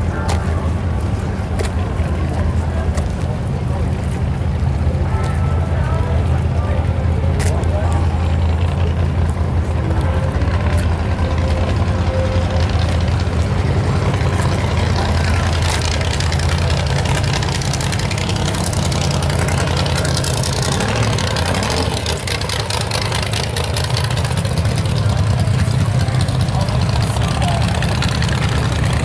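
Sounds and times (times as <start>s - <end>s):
car engine idling: 0.0s - 29.0s.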